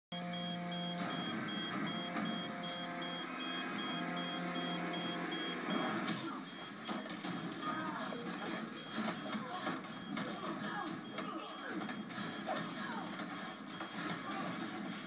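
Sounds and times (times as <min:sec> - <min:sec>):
short high electronic beeps: 0:00.1 - 0:07.1.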